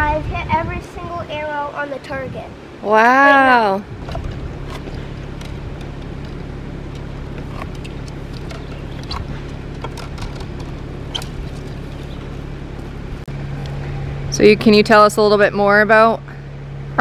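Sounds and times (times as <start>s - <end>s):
constant hum: 0.0s - 17.0s
low outdoor rumble: 0.0s - 17.0s
arrows clicking and clacking: 4.0s - 12.3s.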